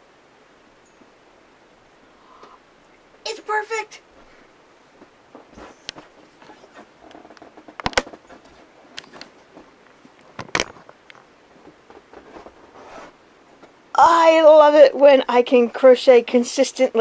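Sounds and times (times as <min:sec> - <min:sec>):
faint rustling: 0:04.0 - 0:16.5
camera handling clicks and knocks: 0:10.4 - 0:10.8.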